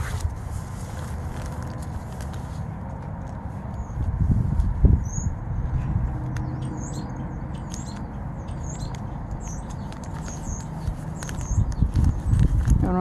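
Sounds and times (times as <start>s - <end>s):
wind rumble on microphone: 0.0s - 13.0s
small birds chirping: 3.6s - 13.0s.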